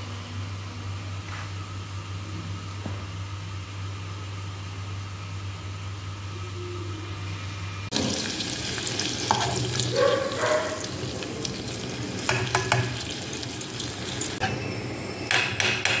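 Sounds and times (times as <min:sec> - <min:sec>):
butter sizzling in a saucepan: 0:07.9 - 0:14.4.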